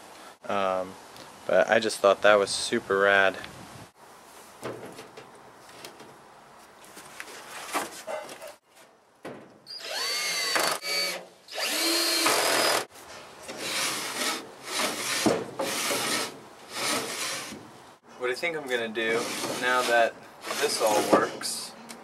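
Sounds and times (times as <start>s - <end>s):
cordless drill whining: 9.7s - 12.9s
wooden door rubbing in guides: 19.1s - 21.3s.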